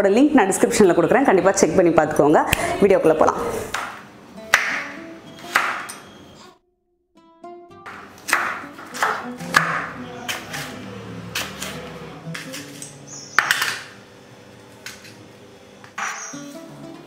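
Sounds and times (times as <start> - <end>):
soft background music: 3.2 - 6.0, 7.2 - 13.4, 16.0 - 17.0
knife chopping on wooden board: 3.7 - 5.9, 7.9 - 10.7, 11.3 - 13.9.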